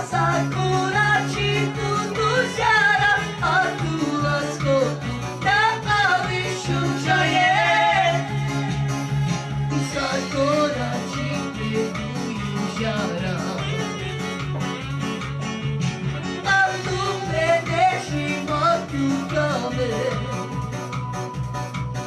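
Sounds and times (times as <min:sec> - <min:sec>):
electronic keyboard: 0:00.0 - 0:22.0
man singing into a microphone: 0:09.7 - 0:14.0, 0:16.4 - 0:20.6.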